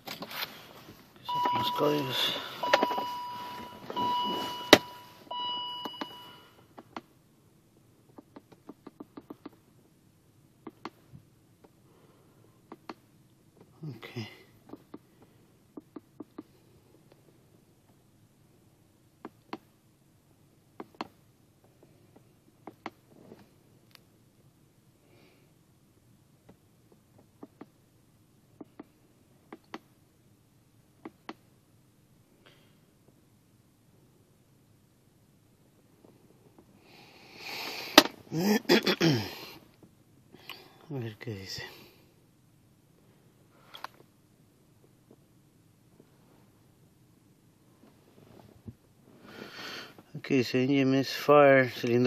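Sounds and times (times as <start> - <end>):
high electronic beep: 1.3 - 6.4.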